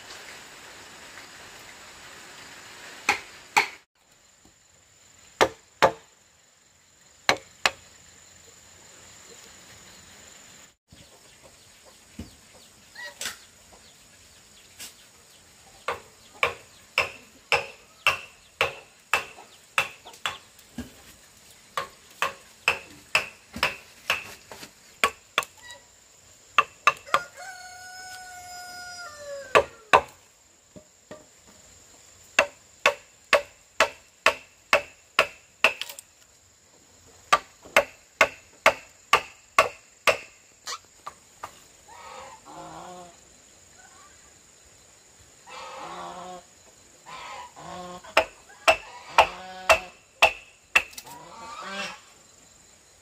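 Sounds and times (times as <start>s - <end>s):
high insect drone: 4.0s - 10.8s, 15.3s - 53.0s
rooster crowing: 27.0s - 29.9s.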